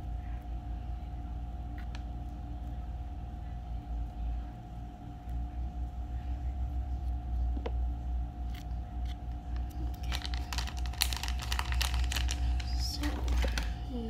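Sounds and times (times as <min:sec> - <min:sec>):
steady low hum: 0:00.0 - 0:14.0
foil pouch crinkling: 0:09.6 - 0:13.9.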